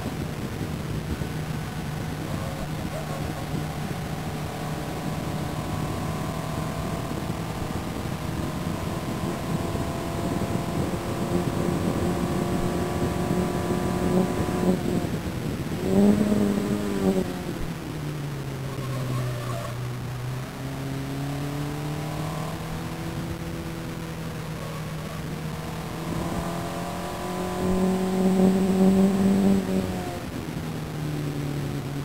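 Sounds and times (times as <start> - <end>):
race car engine revving: 0.0 - 32.0.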